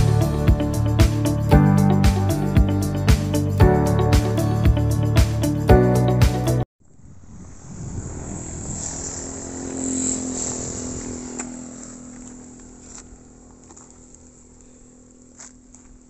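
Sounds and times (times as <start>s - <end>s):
background music: 0.0s - 6.6s
distant engine hum: 6.8s - 16.0s.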